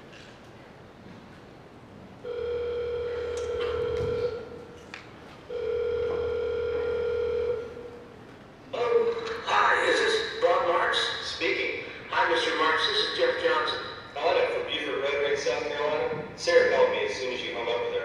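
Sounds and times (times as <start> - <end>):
telephone ringing tone over loudspeakers: 2.2 - 4.8, 5.5 - 8.1.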